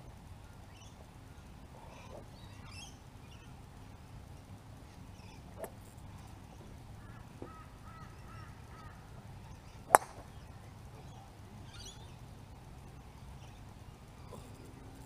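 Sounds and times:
faint bird calls: 5.1s - 15.0s
golf club striking ball: 9.8s - 10.5s.

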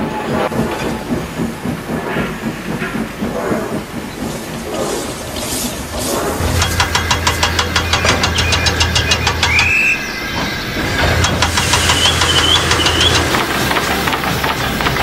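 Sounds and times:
low drone: 0.0s - 15.0s
train locomotive rhythmic beat: 0.0s - 15.0s
wavering high tone: 6.4s - 13.4s.

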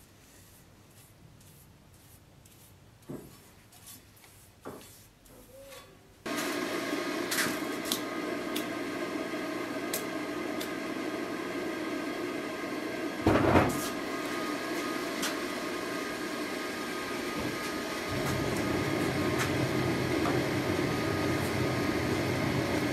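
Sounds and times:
gas forge rushing: 6.3s - 22.9s.

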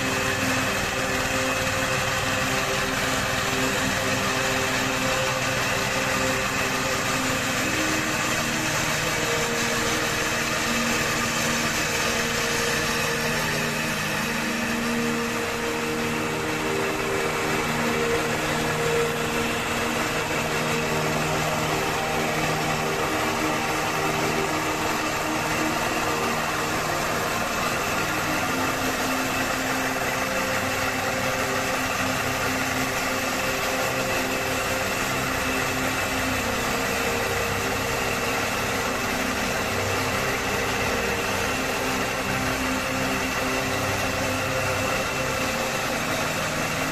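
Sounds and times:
constant noisy hiss: 0.0s - 46.9s
machine engine running: 0.0s - 46.9s.

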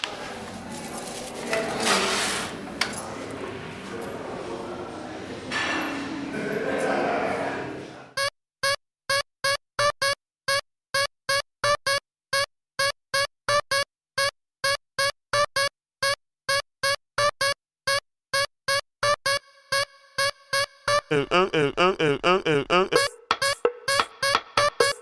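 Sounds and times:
staccato electronic keyboard notes: 8.2s - 25.0s.

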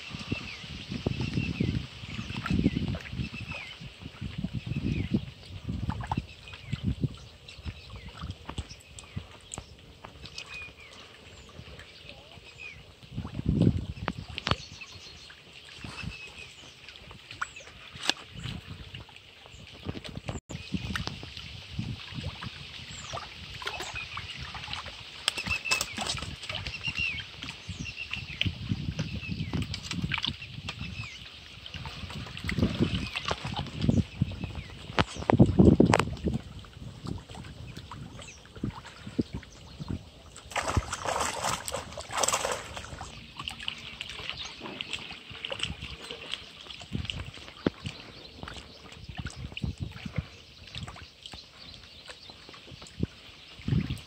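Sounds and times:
water splashing: 0.0s - 54.0s
small birds chirping: 25.2s - 36.0s, 37.4s - 54.0s.

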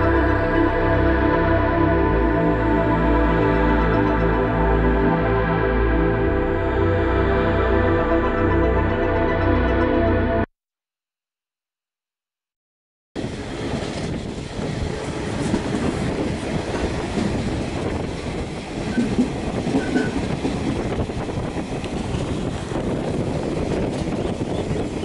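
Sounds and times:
train wheels rumbling on rails: 13.2s - 25.0s.

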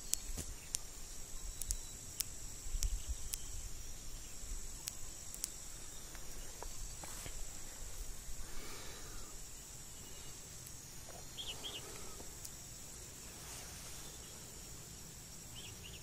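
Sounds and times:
sharp clicks: 0.0s - 7.4s
insects chorus: 0.0s - 16.0s.

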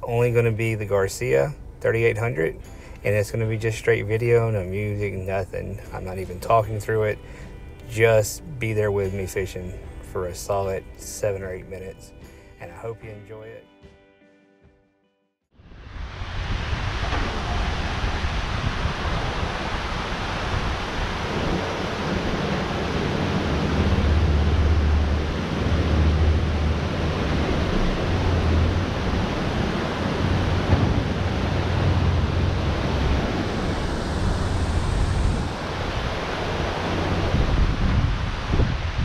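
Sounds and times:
water rushing: 15.7s - 39.0s
wind buffeting microphone: 15.8s - 39.0s.

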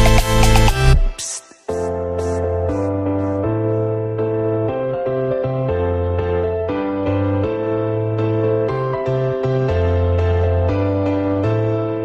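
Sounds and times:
bass line: 0.0s - 1.2s.

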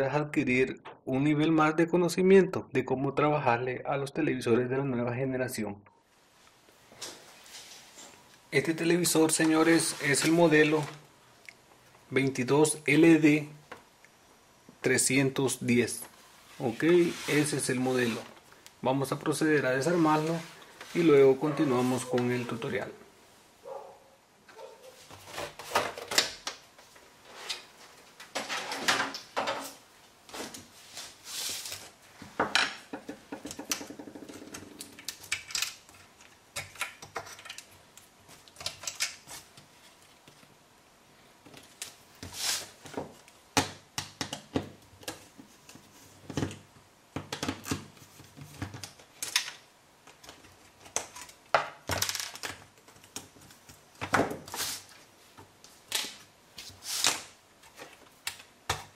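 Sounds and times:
plastic and metal parts clattering: 33.4s - 39.3s, 47.2s - 54.5s.

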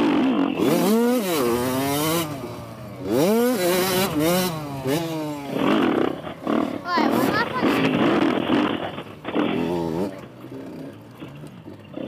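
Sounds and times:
dirt bike engine revving: 0.0s - 12.0s.

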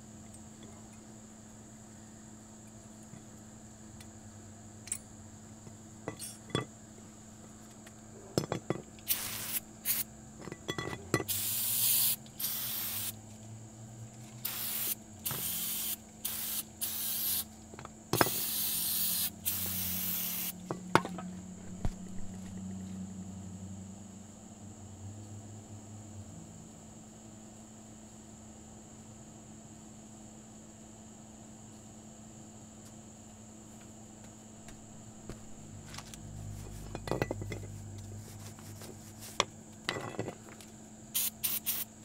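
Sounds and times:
aerosol spray hissing: 9.1s - 10.1s, 11.3s - 13.2s, 14.4s - 17.5s, 18.2s - 20.6s, 41.2s - 41.9s.

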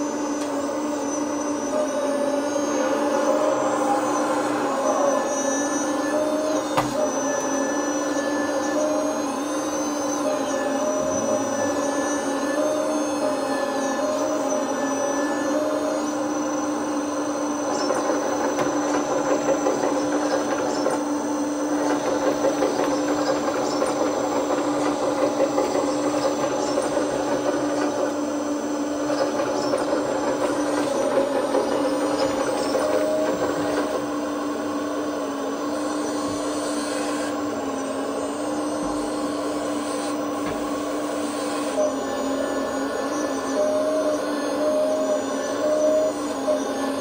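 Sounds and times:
hydraulic pump hum: 0.0s - 47.0s
simulated diesel engine through speaker: 1.6s - 7.7s, 10.2s - 14.7s.

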